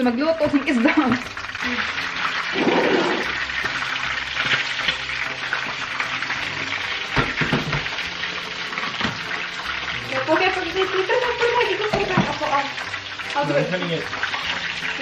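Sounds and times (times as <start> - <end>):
fish sizzling in hot oil: 0.0 - 15.0
knock: 7.2 - 7.9.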